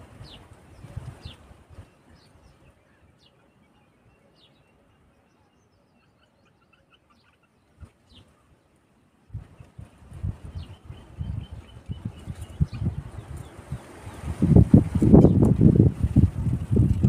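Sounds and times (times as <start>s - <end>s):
faint bird calls: 0.2s - 14.2s.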